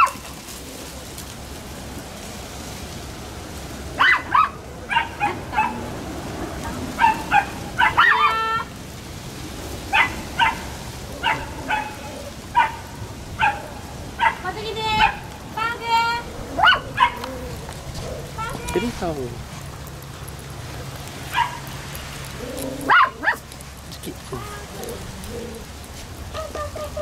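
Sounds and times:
dog yelping: 0.0s - 0.3s, 4.0s - 5.8s, 6.9s - 8.7s, 9.9s - 15.3s, 16.2s - 18.8s, 21.3s - 21.7s, 22.4s - 23.5s
dogs yipping: 0.0s - 1.0s, 4.0s - 5.9s, 6.8s - 8.7s, 9.9s - 15.4s, 16.2s - 18.9s, 20.2s - 23.8s.

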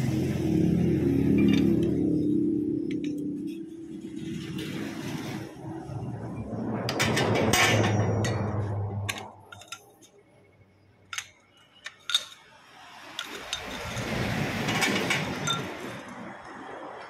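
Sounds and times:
rushing noise: 0.0s - 9.7s.

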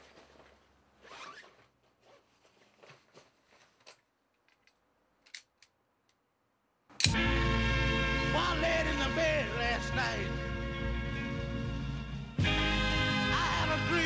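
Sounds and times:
plastic bag rustling: 0.0s - 4.0s.

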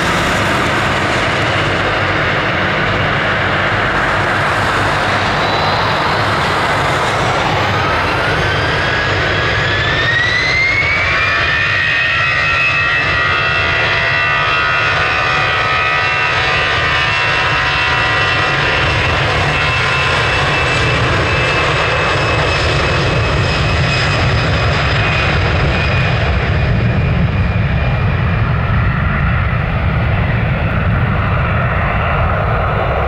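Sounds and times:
jet engines whining: 0.0s - 33.0s
low rumble of takeoff roll: 0.0s - 33.0s.

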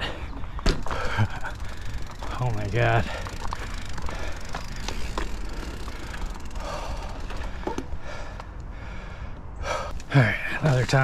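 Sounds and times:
person breathing hard: 3.0s - 5.0s, 5.6s - 10.0s.

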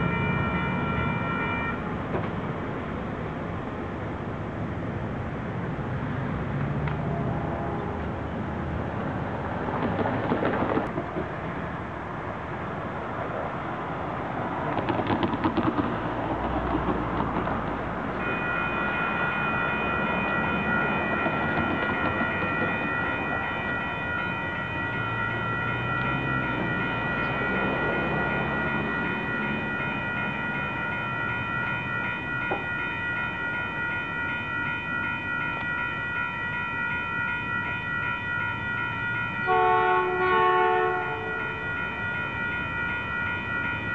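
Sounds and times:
train horn: 0.0s - 2.0s, 7.0s - 8.3s, 18.2s - 24.4s, 39.4s - 41.8s
railroad crossing bell: 0.0s - 43.9s
road traffic passing: 0.0s - 43.9s.

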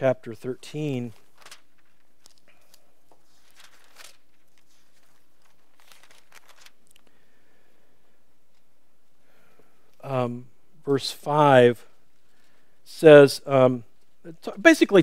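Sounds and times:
book pages rustling: 1.0s - 7.2s.

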